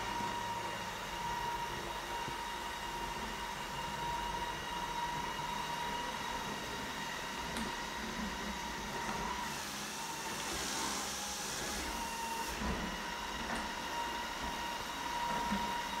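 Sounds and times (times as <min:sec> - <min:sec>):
robot vacuum motor whine: 0:00.0 - 0:16.0
vacuum fan and brushes hiss: 0:00.0 - 0:16.0.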